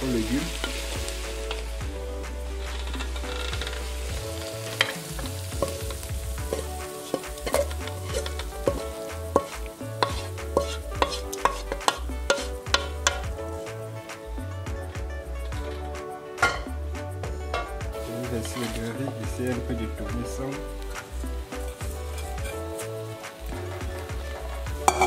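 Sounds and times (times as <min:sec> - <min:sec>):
hot food sizzling: 0:00.0 - 0:25.0
metal spatula scraping a wok: 0:02.6 - 0:13.2, 0:18.4 - 0:19.0, 0:21.4 - 0:23.1, 0:24.4 - 0:25.0.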